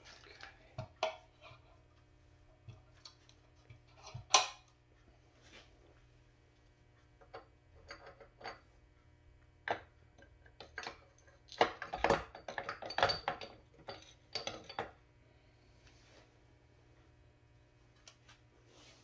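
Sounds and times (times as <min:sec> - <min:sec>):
metal shaft clinking against housing: 0:11.6 - 0:15.0.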